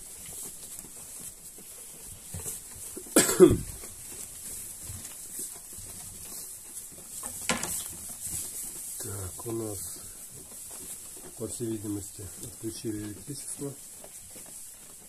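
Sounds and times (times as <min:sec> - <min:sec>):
sheep snorting: 0:01.2 - 0:07.2.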